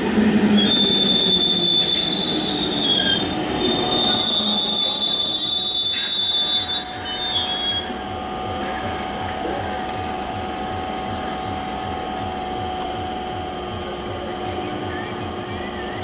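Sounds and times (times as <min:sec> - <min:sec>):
train machinery humming: 0:00.0 - 0:16.0
train brake and wheel squeal: 0:00.5 - 0:08.0.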